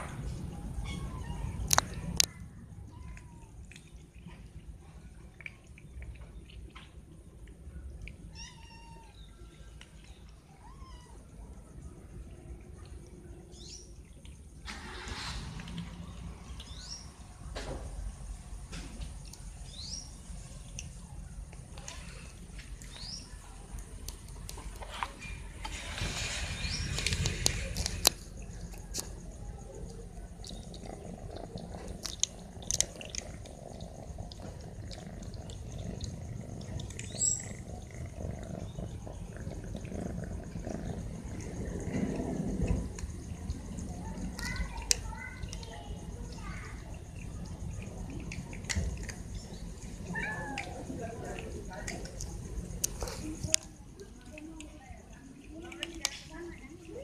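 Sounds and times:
cats crunching dry kibble: 0.0s - 8.4s, 11.4s - 57.0s
passing traffic rumble: 13.9s - 54.0s
hiss: 14.6s - 16.0s, 25.6s - 27.9s
bird chirping: 35.0s - 39.4s.

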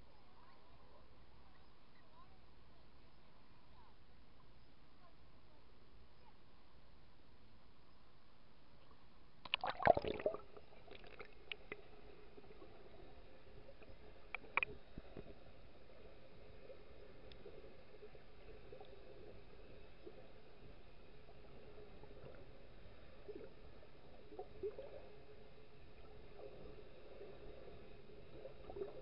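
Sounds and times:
underwater clicks and gurgles: 8.8s - 29.0s
water splashing: 9.5s - 15.3s
muffled underwater sound: 9.7s - 29.0s.

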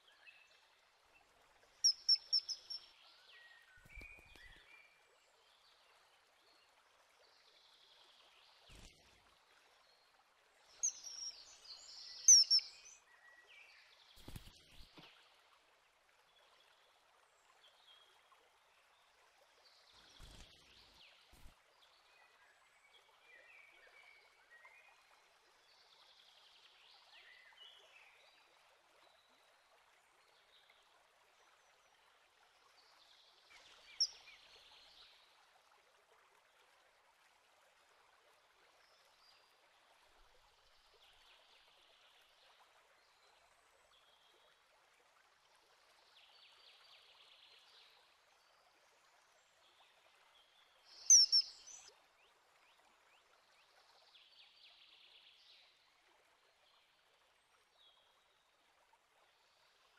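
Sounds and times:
soft steady hiss: 0.0s - 59.9s
faint bird chirps: 1.8s - 4.8s, 10.8s - 13.0s, 50.9s - 51.9s.

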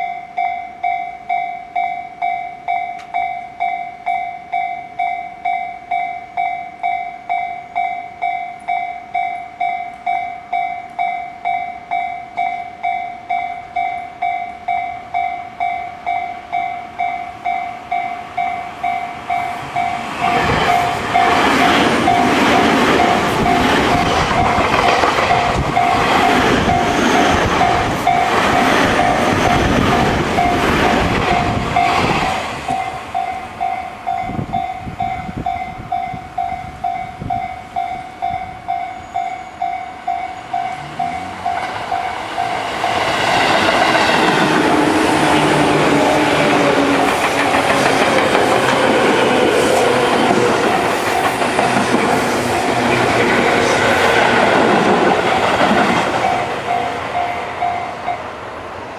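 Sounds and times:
train wheels clattering: 19.4s - 33.4s, 40.5s - 57.4s
level crossing bell ringing: 32.8s - 42.6s.

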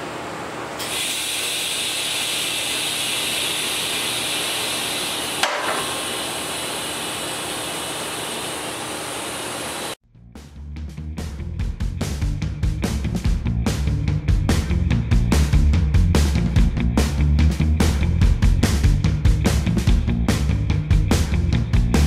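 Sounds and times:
welding arc hissing: 0.8s - 10.0s.

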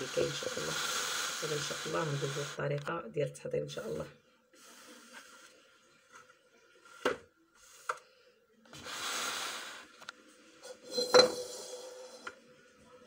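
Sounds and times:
dish sliding scrape: 0.0s - 2.6s, 8.7s - 10.0s, 10.6s - 12.4s.

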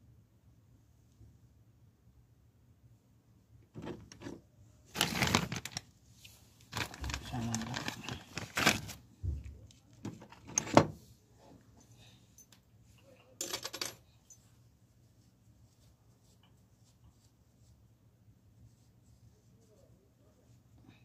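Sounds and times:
metal parts knocking and clicking: 13.4s - 14.0s.

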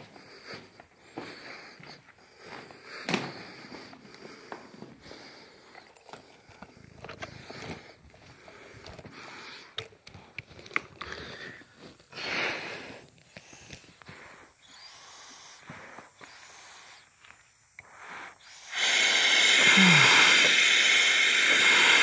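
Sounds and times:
stones clicking and cracking: 5.7s - 11.8s.

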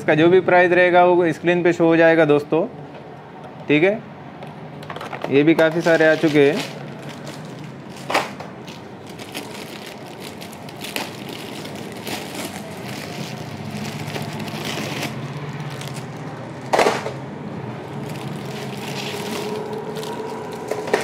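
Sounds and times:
cardboard rustling: 5.6s - 17.2s, 17.9s - 21.0s
plastic wrapping crinkling: 5.6s - 17.2s, 17.8s - 21.0s.

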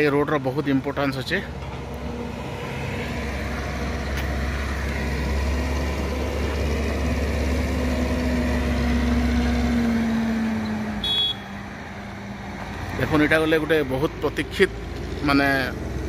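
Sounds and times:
heavy diesel engine drone: 0.0s - 16.0s.

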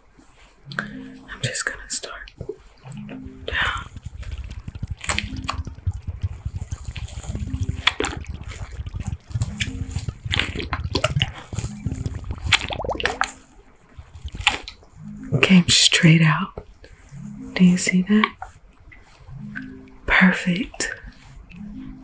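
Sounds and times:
wet crackling rustle: 0.0s - 22.0s
wet hair squishing: 2.3s - 16.2s.

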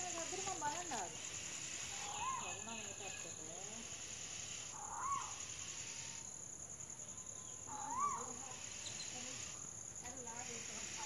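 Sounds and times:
high insect chirring: 0.0s - 11.0s
bird alarm call: 0.1s - 6.2s, 7.6s - 9.6s.

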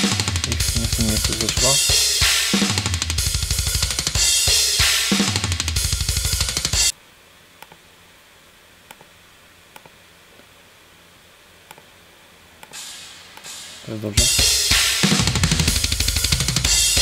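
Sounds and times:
programmed drum loop: 0.0s - 7.0s, 12.7s - 17.0s
faint clicks: 7.6s - 7.8s.

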